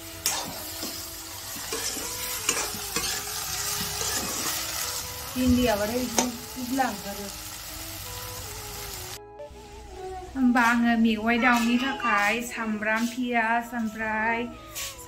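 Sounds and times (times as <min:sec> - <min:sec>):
okra sizzling in oil: 0:00.0 - 0:09.2
metal spatula scraping wok: 0:00.2 - 0:05.0.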